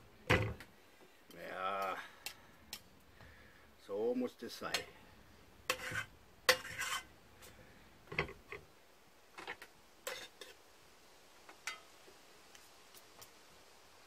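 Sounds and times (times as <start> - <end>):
cutlery scraping and clinking: 5.7 - 7.1, 9.4 - 10.6.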